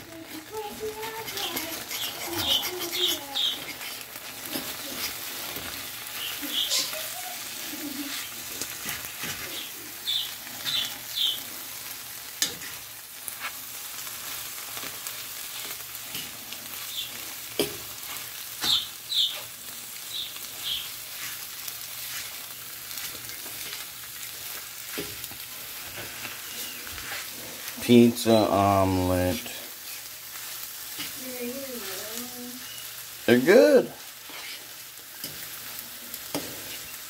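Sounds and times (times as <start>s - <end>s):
food sizzling in a frying pan: 0.0s - 37.0s
metal utensil scraping a pan: 0.3s - 7.0s, 12.4s - 13.6s, 14.8s - 21.4s, 34.1s - 37.0s.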